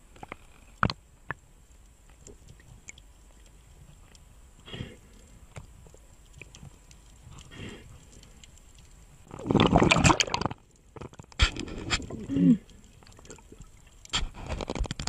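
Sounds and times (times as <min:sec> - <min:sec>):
faint underwater clicks: 0:00.0 - 0:15.0
soft rustle: 0:01.5 - 0:09.3
underwater knocking and bubbling: 0:05.1 - 0:15.0.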